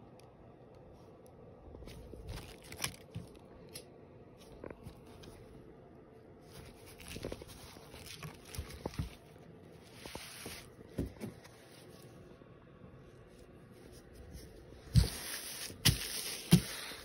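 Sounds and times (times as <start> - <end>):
mesh jersey rustling: 1.8 - 3.4, 6.4 - 12.2.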